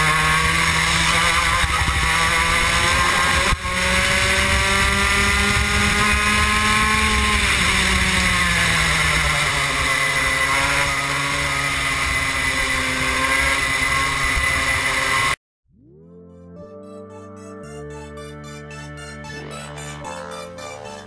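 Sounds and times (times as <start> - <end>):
kart engine at speed: 0.0 - 15.4, 18.0 - 21.0.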